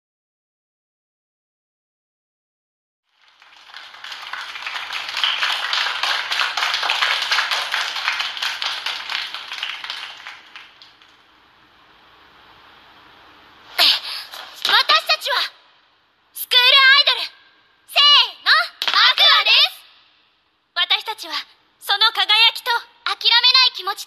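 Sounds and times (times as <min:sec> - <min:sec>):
people clapping: 0:03.1 - 0:11.3, 0:13.8 - 0:15.2, 0:18.6 - 0:19.7.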